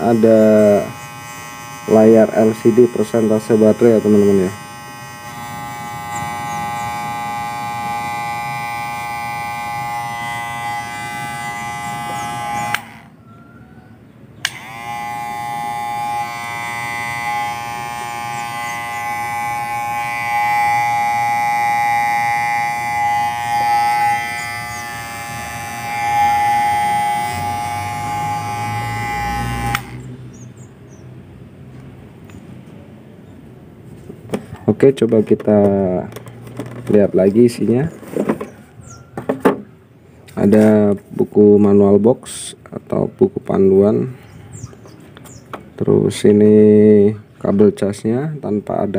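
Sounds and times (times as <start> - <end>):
hair clipper motor hum: 0.0 - 13.2, 14.4 - 30.5.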